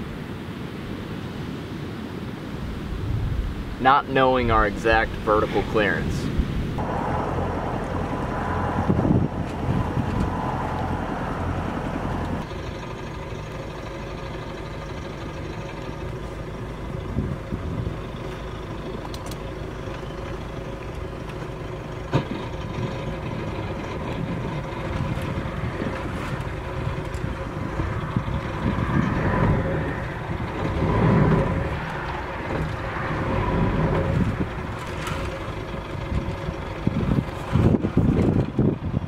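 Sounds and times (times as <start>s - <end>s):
rough rush of noise: 0.0s - 12.5s
boat engine running: 2.7s - 39.0s.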